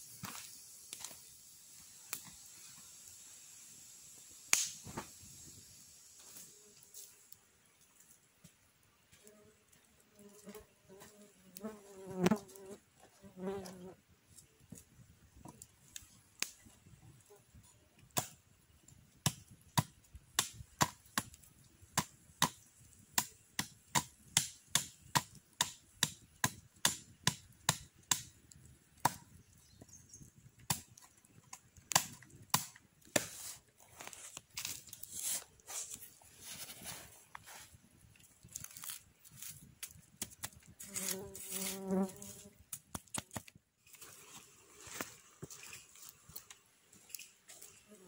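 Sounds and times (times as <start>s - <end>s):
machete chopping wooden stick: 23.2s - 28.3s, 31.9s - 33.5s
blade scraping wood: 33.1s - 37.7s.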